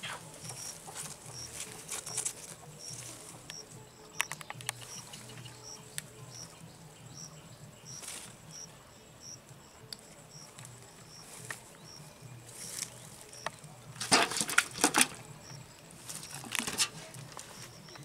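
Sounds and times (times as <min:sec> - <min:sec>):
faint chirp: 0:00.0 - 0:14.0, 0:15.1 - 0:18.0
fish thrashing in metal bucket: 0:14.0 - 0:15.2.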